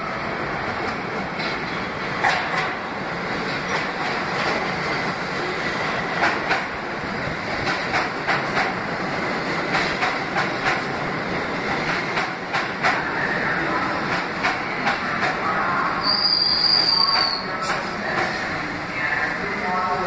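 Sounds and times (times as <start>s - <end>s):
steel wheels on rail: 0.5s - 20.0s
wheels clacking over rail joints: 1.3s - 2.8s, 7.6s - 8.8s.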